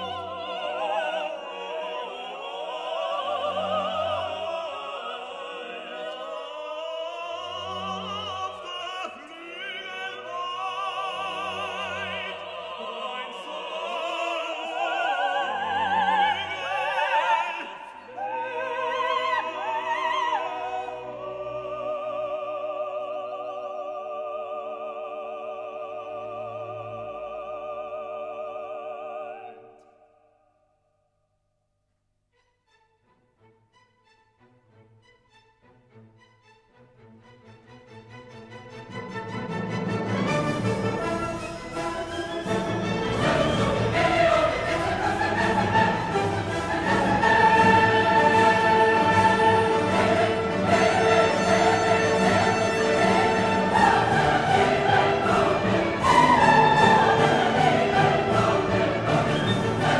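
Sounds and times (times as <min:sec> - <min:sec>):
operatic singing with vibrato: 0:00.0 - 0:30.3, 0:37.4 - 0:59.9
orchestral accompaniment: 0:32.3 - 0:59.9.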